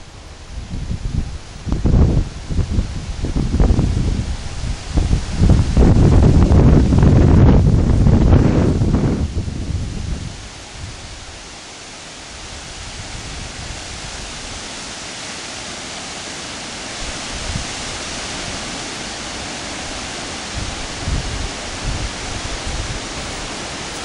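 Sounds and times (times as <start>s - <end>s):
low wind buffets: 0.0s - 11.5s, 17.0s - 24.0s
wind hiss on microphone: 0.0s - 24.0s.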